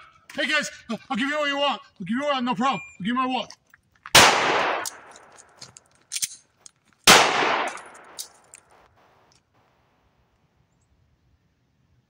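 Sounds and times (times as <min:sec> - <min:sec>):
pistol metallic clicks: 0:04.0 - 0:09.5
pistol shots echoing: 0:04.1 - 0:05.6, 0:07.0 - 0:08.7.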